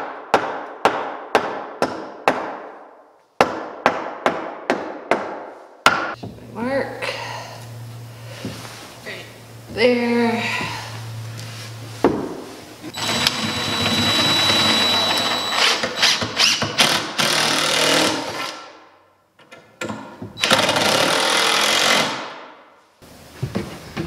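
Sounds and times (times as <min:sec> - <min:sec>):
power driver driving screws: 0:12.9 - 0:18.6, 0:20.4 - 0:22.2.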